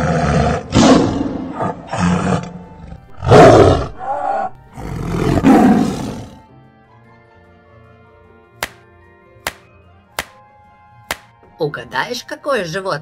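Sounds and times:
tiger roaring and growling: 0.0 - 6.4.

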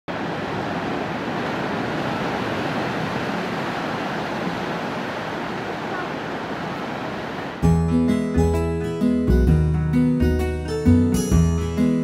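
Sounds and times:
surf breaking on a beach: 0.1 - 7.6.

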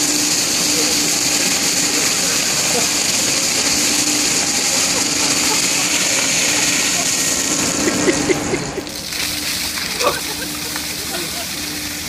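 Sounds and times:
low machinery hum: 0.0 - 12.0
water pouring and splashing on deck: 8.8 - 12.0.

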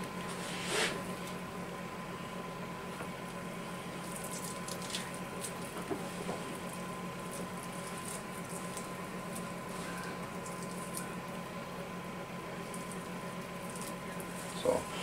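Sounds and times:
steady low hum: 0.0 - 15.0
wet squishing of meat: 4.0 - 5.7.

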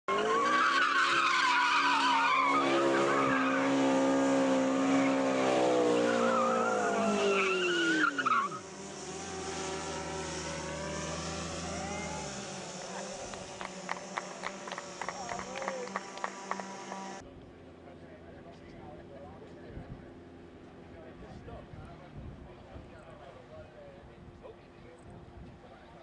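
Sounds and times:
tyres squealing: 0.1 - 3.8, 5.9 - 8.6
car engine revving high: 0.1 - 17.2.

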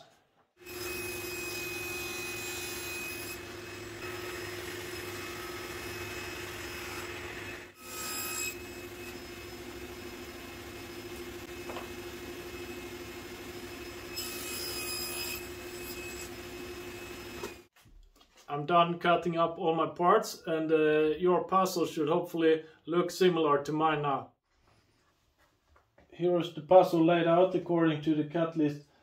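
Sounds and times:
table saw cutting plywood: 0.6 - 17.7.

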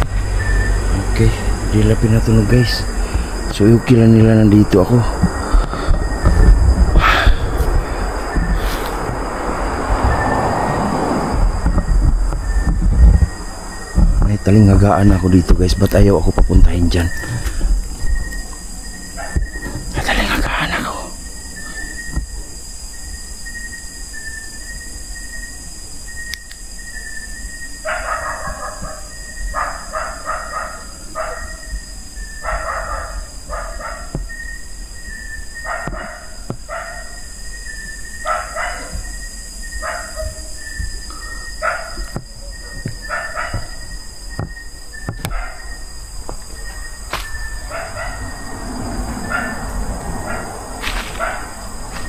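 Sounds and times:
steady high-pitched drone: 0.0 - 22.3
dogs barking: 19.1 - 21.9, 27.8 - 34.5, 35.6 - 37.4, 38.1 - 44.0, 45.0 - 46.0, 47.4 - 52.0.

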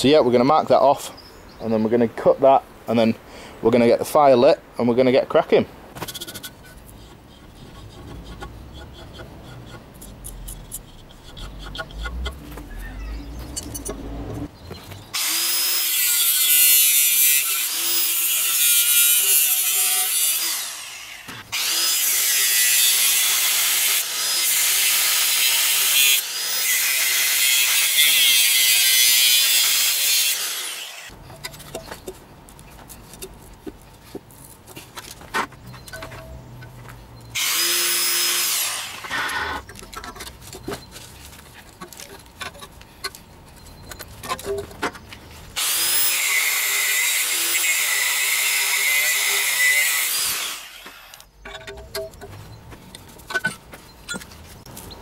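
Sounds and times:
angle grinder cutting steel: 15.2 - 31.1, 37.4 - 39.6, 45.6 - 51.3
handling noises: 31.1 - 37.4, 39.0 - 45.6, 50.7 - 55.0.

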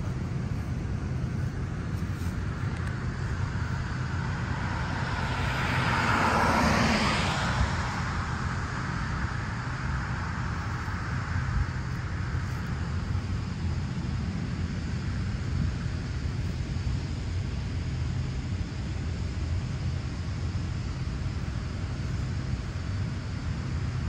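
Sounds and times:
vehicle passing: 0.0 - 13.5
low rumble of traffic: 0.0 - 24.0.

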